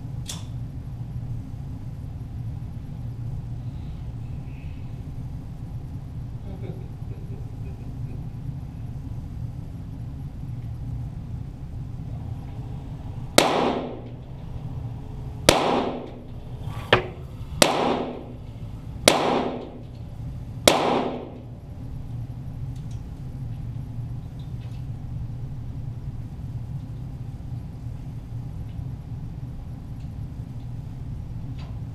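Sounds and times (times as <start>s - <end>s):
pistol shots echoing: 13.4s - 14.2s, 15.4s - 16.3s, 17.0s - 18.4s, 19.0s - 19.9s, 20.7s - 21.4s.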